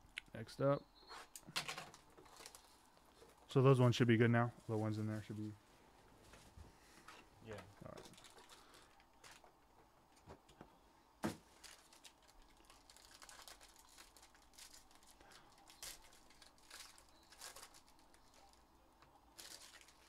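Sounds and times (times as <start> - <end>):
foil wrapper crinkling: 1.6 - 3.4, 7.9 - 9.5, 11.4 - 20.0.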